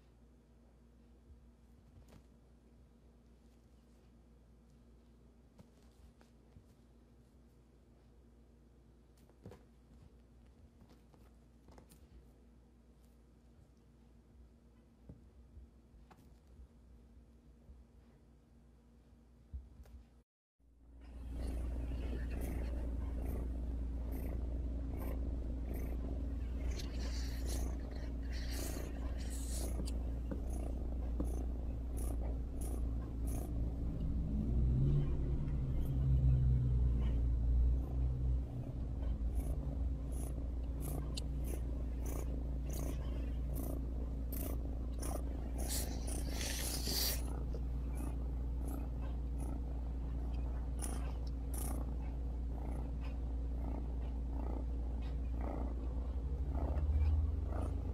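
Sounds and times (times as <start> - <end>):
cat purring: 21.0 - 57.9.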